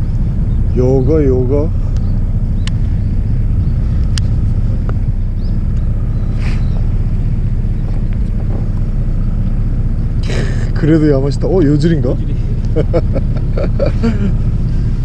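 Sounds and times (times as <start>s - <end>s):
boat engine running: 0.0s - 15.0s
faint clicks: 1.9s - 2.9s.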